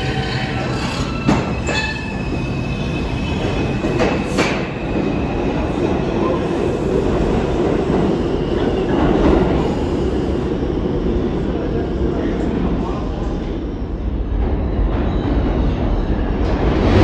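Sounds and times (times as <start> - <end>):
high wheel squeal: 0.0 - 4.2
subway train rumble: 0.0 - 17.0.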